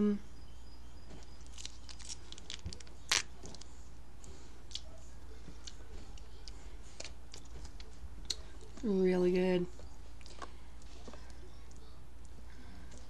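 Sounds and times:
low steady hum: 0.0s - 13.0s
sauce packet crinkling: 1.4s - 3.7s.

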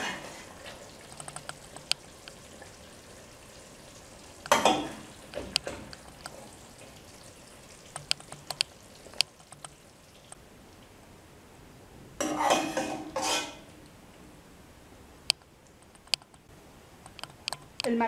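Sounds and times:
utensil clinking on pot and plate: 4.5s - 5.9s, 12.2s - 13.6s
utensil scraping: 12.2s - 13.6s.

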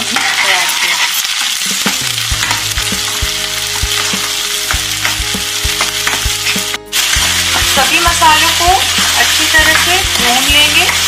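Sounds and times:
steel spoon scraping a pan: 0.0s - 3.2s
food sizzling in hot oil: 0.0s - 11.0s.

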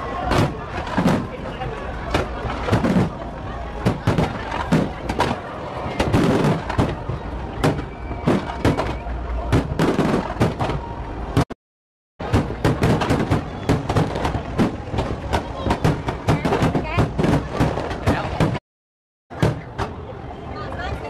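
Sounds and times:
fireworks bursting: 2.1s - 11.5s, 12.2s - 18.6s.

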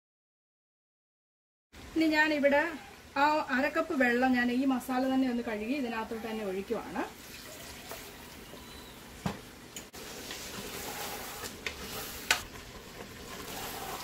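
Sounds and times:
food sizzling in a pan: 9.9s - 14.0s
wooden spatula stirring: 10.0s - 14.0s.

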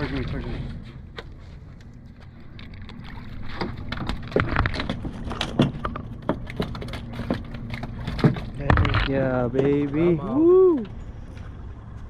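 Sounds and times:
low steady rumble: 0.0s - 12.0s
fish flopping on deck: 0.7s - 9.8s.

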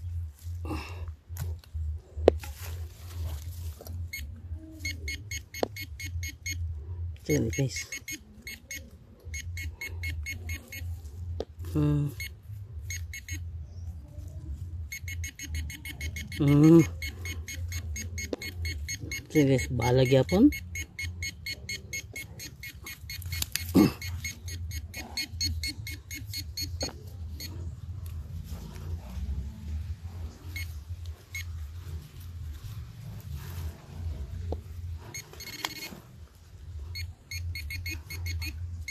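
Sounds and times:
low steady hum: 0.0s - 38.9s
metal detector beeping: 4.0s - 6.7s, 7.3s - 11.0s, 11.7s - 13.5s, 14.8s - 27.6s, 30.4s - 31.6s, 35.0s - 38.9s
person speaking: 7.2s - 8.1s, 11.6s - 12.4s, 16.0s - 17.4s, 19.2s - 20.6s, 23.7s - 24.1s
low rumble: 27.0s - 37.9s.

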